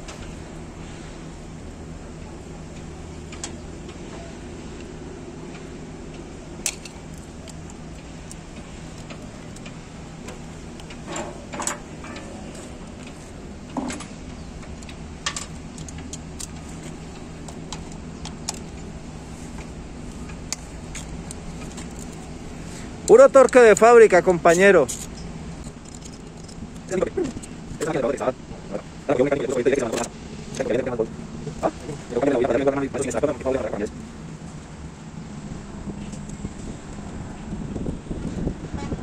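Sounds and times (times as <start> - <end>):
low engine hum: 0.0 - 39.0
hand tools clinking on metal: 23.0 - 28.3.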